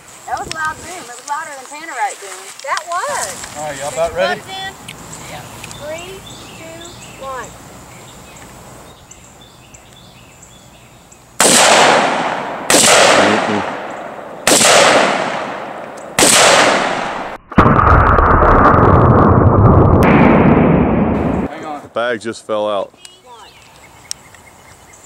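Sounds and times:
rifle shots with echo: 11.4s - 17.4s
explosion boom and rumble: 16.4s - 21.5s.

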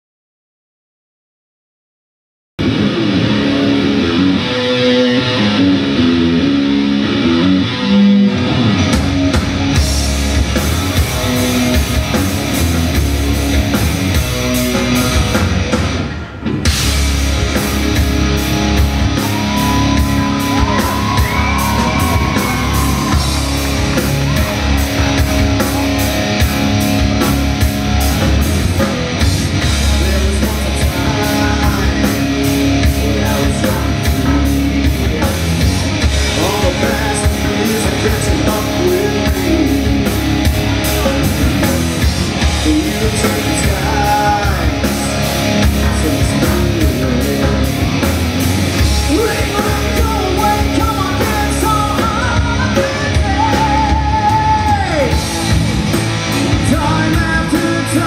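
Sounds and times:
distorted electric guitars: 2.6s - 58.0s
drum kit: 8.4s - 58.0s.

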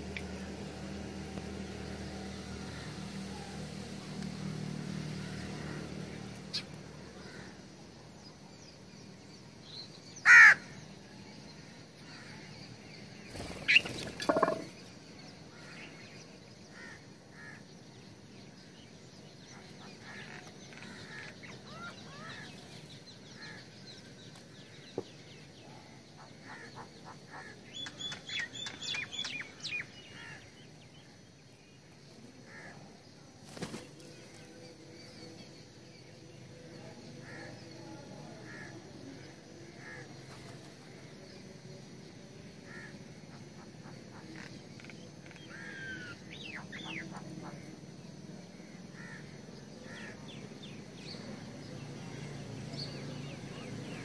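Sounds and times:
small birds chirping: 0.0s - 54.0s
crow cawing: 10.2s - 10.8s, 16.7s - 17.6s, 30.1s - 30.4s, 42.7s - 42.9s, 49.0s - 49.3s
wings flapping: 13.3s - 14.7s, 33.4s - 34.1s.

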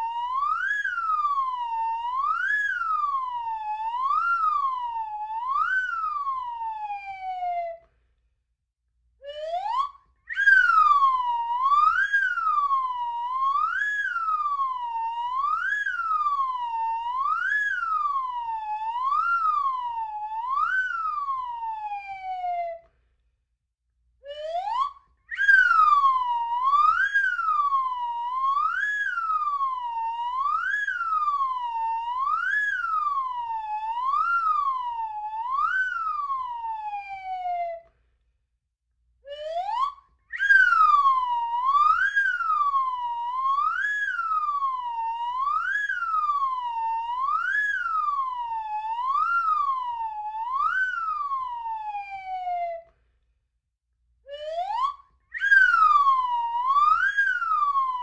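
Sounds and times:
slide whistle warbling: 10.3s - 12.7s, 25.3s - 31.4s, 39.3s - 44.9s, 54.4s - 58.0s.

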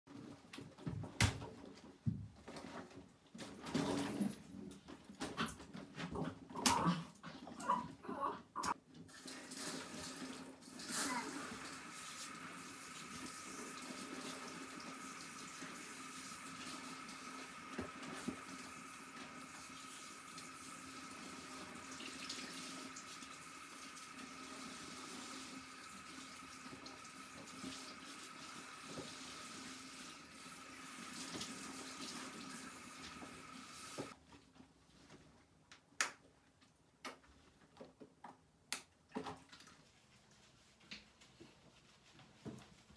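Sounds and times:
water spraying from shower sprayer: 9.2s - 34.2s.

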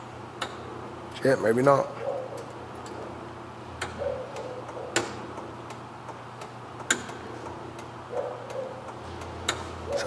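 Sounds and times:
steady low hum: 0.0s - 10.0s
switches clicking: 3.8s - 9.7s.

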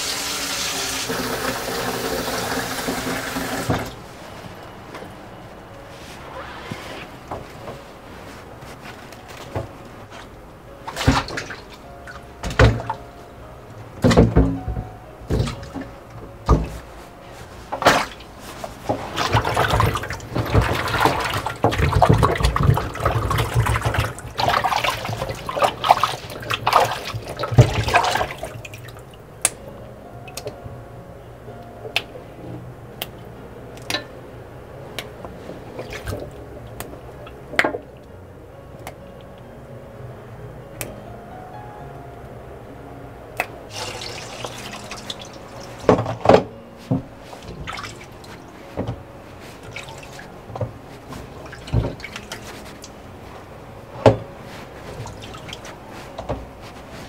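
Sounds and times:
tap water splashing: 10.9s - 11.7s, 15.3s - 15.9s, 16.5s - 16.8s, 18.9s - 29.6s, 35.8s - 37.9s, 43.7s - 49.0s, 51.4s - 53.0s
water drips: 43.7s - 46.0s, 47.4s - 48.4s.

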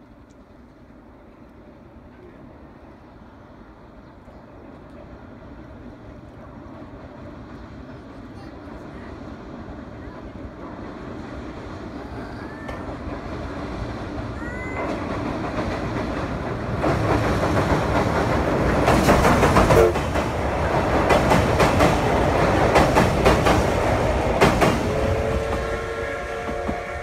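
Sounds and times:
train wheels clattering: 12.7s - 27.0s
steam whistle chord: 24.8s - 27.0s.

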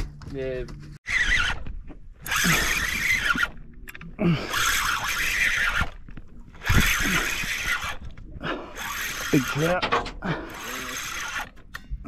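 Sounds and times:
short squeaks of line: 1.0s - 3.6s, 4.5s - 8.1s.

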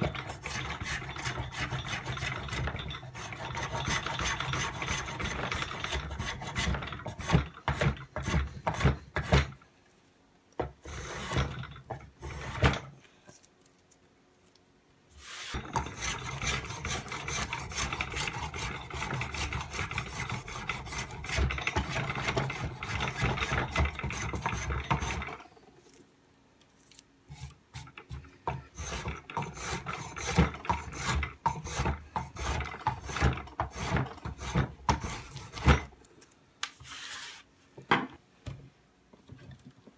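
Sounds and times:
blade scraping wooden stick: 0.0s - 9.5s, 10.8s - 12.9s, 15.2s - 25.6s, 27.3s - 35.9s, 36.6s - 37.5s.

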